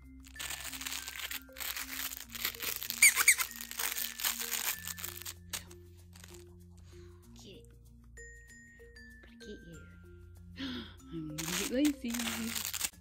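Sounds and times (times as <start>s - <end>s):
plush toy crinkling: 0.0s - 6.6s, 11.4s - 13.0s
squeaky toy squeaks: 0.3s - 6.4s, 11.4s - 13.0s
mallet percussion music: 4.8s - 11.6s.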